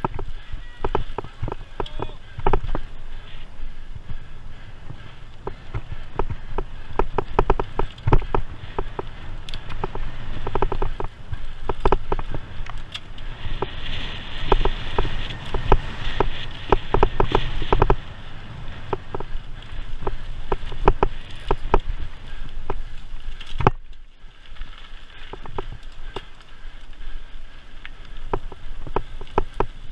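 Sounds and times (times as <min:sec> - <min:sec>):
tyres hissing on loose ground: 0:00.0 - 0:23.4
bicycle rattling and knocking: 0:00.0 - 0:29.9
wind rumble on microphone: 0:00.0 - 0:29.9.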